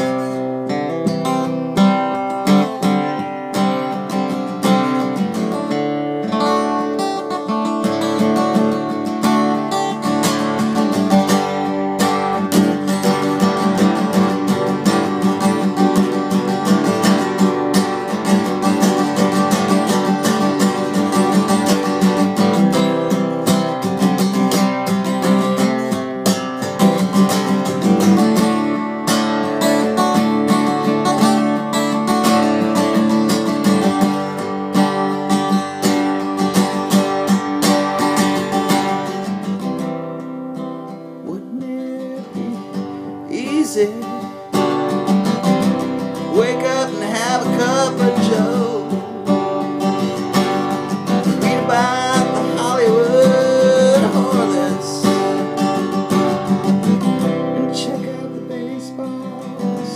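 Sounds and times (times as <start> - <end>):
acoustic guitar strumming: 0.0 - 59.9
bending melody line: 41.2 - 59.9.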